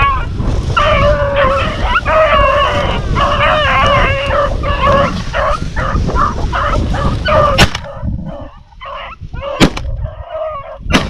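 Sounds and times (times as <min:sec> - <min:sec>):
dogs barking: 0:00.8 - 0:10.9
gunshots: 0:07.5 - 0:07.9, 0:09.6 - 0:09.9.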